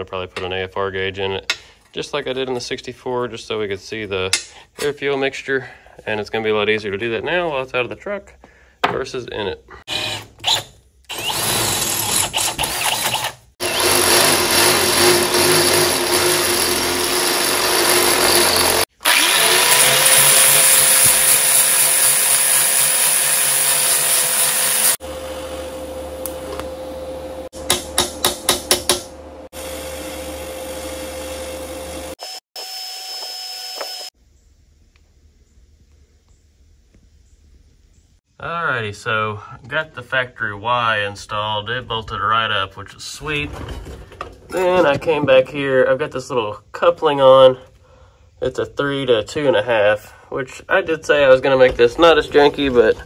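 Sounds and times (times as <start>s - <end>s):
power drill on steel pipe: 9.9s - 25.0s, 31.9s - 34.2s.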